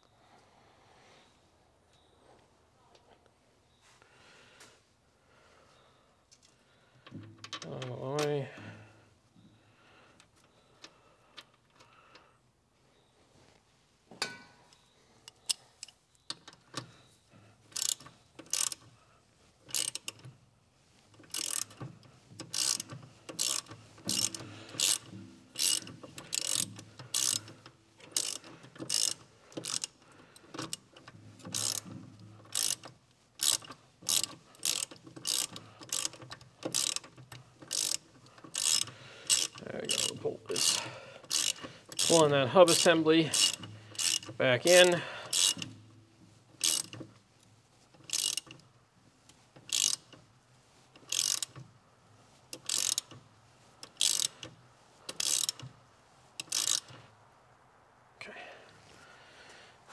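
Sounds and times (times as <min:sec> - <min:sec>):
hand ratchet clicking: 0:17.7 - 0:19.0, 0:19.7 - 0:20.3, 0:21.1 - 0:46.0, 0:46.6 - 0:47.2, 0:48.0 - 0:48.7, 0:49.3 - 0:50.3, 0:51.0 - 0:51.7, 0:52.5 - 0:53.2, 0:53.8 - 0:55.7, 0:56.4 - 0:57.0.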